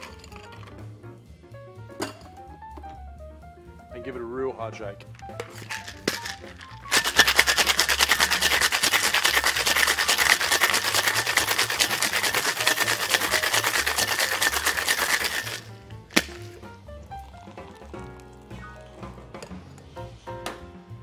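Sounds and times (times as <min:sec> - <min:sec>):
ice rattling in cocktail shaker: 0:00.0 - 0:00.8, 0:05.1 - 0:18.4.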